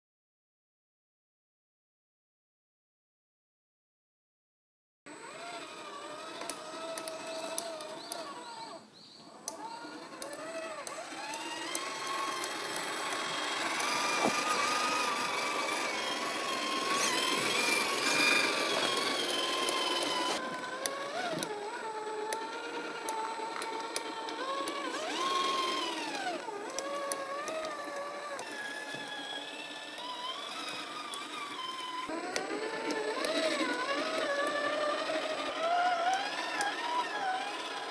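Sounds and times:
rc car motor and gearbox whine: 0:05.1 - 0:37.9.

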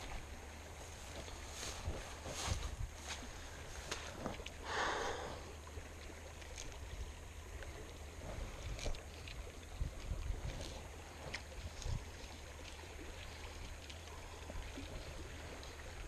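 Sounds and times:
wind on microphone: 0:00.0 - 0:05.5, 0:06.8 - 0:16.0
creek running over riffle: 0:00.0 - 0:16.0
fishing line clicks and rustles: 0:01.0 - 0:04.6, 0:05.8 - 0:16.0.

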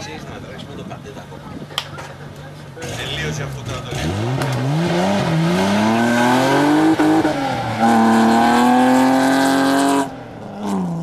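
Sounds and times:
car engine revving hard: 0:02.8 - 0:11.0.

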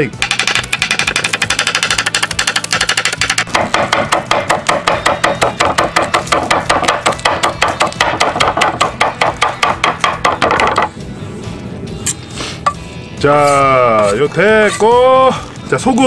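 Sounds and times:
knife chopping on wooden board: 0:02.5 - 0:10.9.

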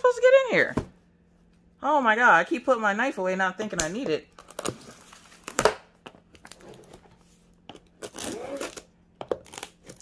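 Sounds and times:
knife slitting packing tape: 0:08.0 - 0:10.0.

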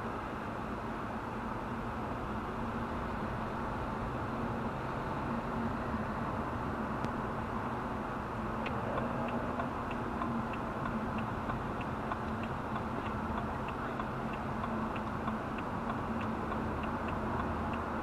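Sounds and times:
car engine and road noise: 0:00.0 - 0:18.0
turn signal ticking: 0:08.4 - 0:18.0.

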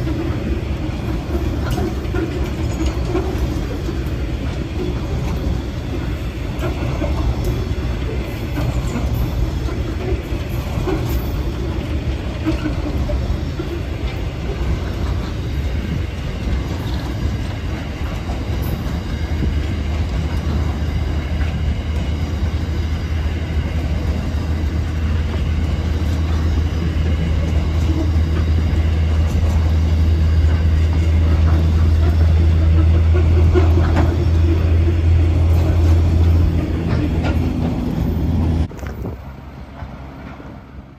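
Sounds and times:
faint rail clicks: 0:00.0 - 0:40.9
freight train wheels rumbling on rail: 0:00.0 - 0:40.9.

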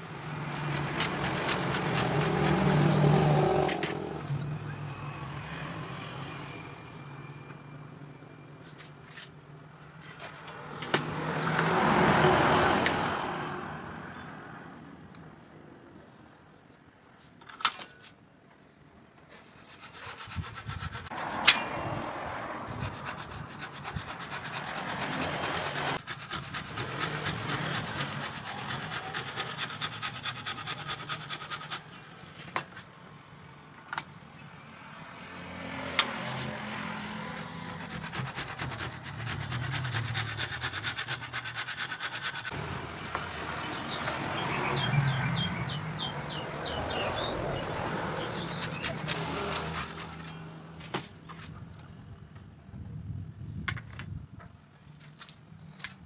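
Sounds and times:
hand rubbing bamboo: 0:00.4 - 0:04.2, 0:19.3 - 0:21.6, 0:22.5 - 0:32.0, 0:36.1 - 0:42.6, 0:48.0 - 0:50.3.

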